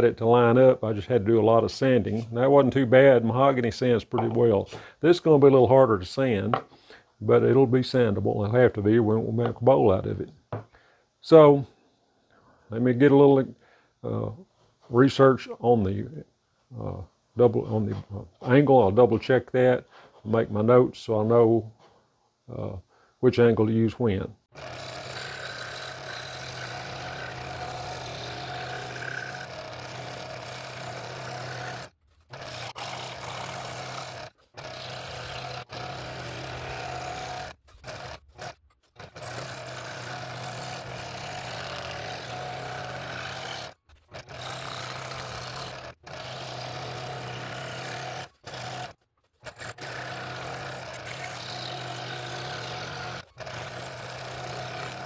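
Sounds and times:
scroll saw cutting wood: 0:24.5 - 0:55.0.

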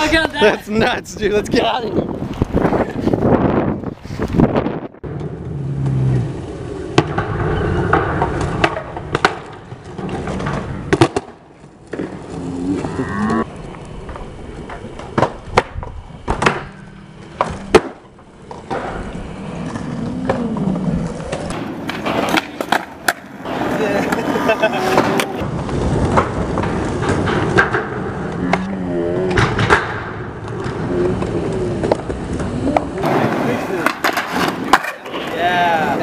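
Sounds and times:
skateboards rolling on concrete: 0:00.0 - 0:36.0
skateboard clacks: 0:06.9 - 0:12.3, 0:13.4 - 0:36.0.

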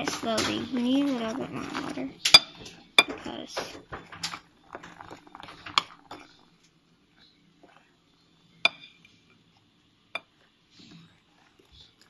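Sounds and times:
whisk scraping mixing bowl: 0:00.0 - 0:06.5.

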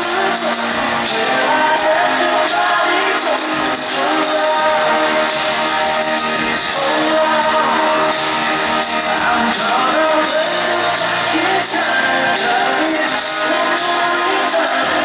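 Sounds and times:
man singing into a microphone: 0:00.0 - 0:15.0.

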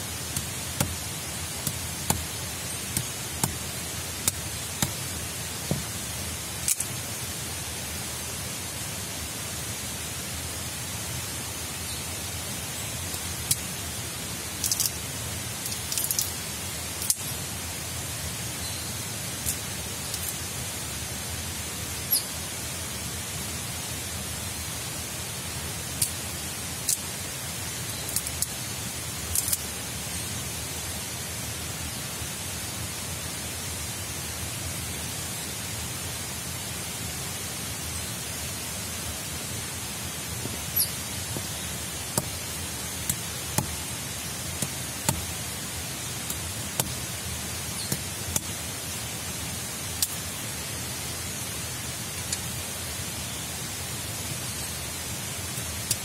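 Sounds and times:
rain hissing: 0:00.0 - 0:56.0
wood sticks clicking when stacked: 0:14.6 - 0:15.0.

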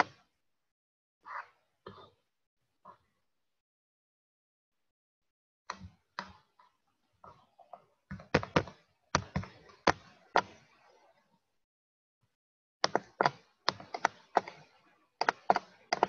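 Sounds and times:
sharp taps and knocks: 0:12.8 - 0:14.6.

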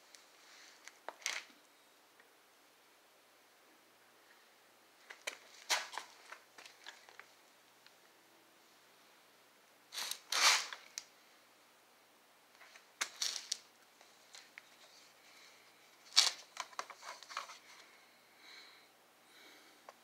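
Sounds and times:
phone being handled: 0:16.1 - 0:17.8.

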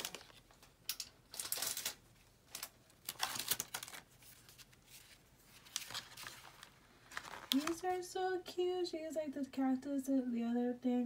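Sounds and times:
paper and card rustling: 0:00.0 - 0:08.0.

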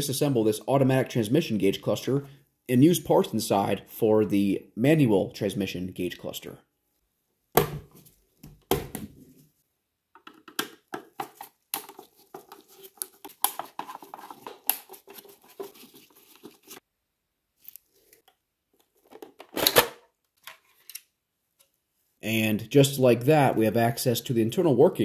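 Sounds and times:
screwdriver turning screws in plastic: 0:10.3 - 0:16.8.

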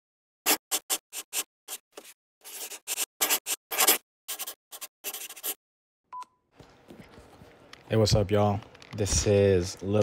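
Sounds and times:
pen scratching on paper: 0:00.4 - 0:05.6.

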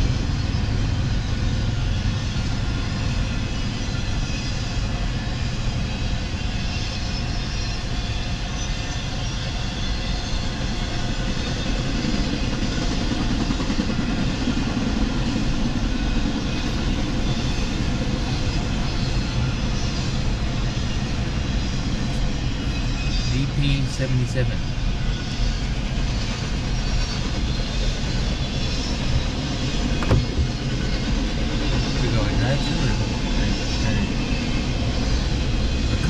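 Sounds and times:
car cabin hum: 0:29.9 - 0:30.6.

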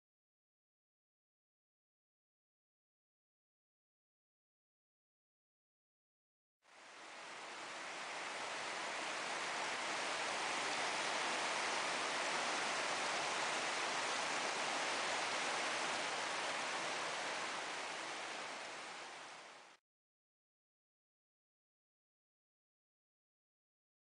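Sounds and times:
heavy rain: 0:06.7 - 0:19.8
rushing floodwater: 0:06.7 - 0:19.8.

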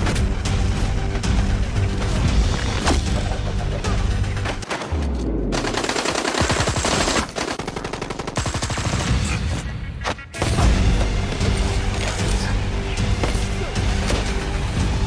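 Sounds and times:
automatic gunfire: 0:05.6 - 0:09.3.

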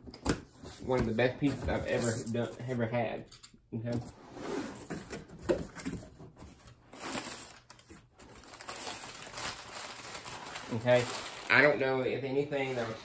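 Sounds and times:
cardboard scraping and rustling: 0:00.6 - 0:02.6, 0:12.6 - 0:13.0.

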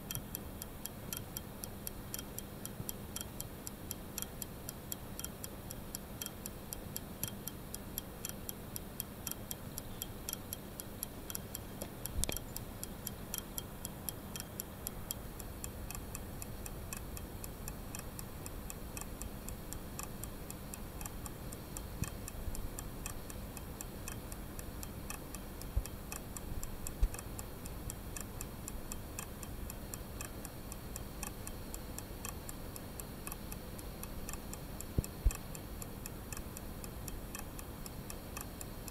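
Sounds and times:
watch ticking: 0:05.2 - 0:06.4, 0:11.0 - 0:38.9.

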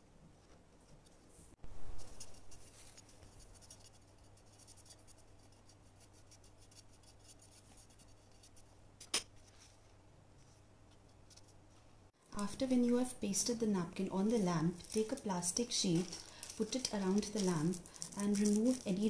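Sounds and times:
paintbrush scratching on paper: 0:01.8 - 0:08.7.

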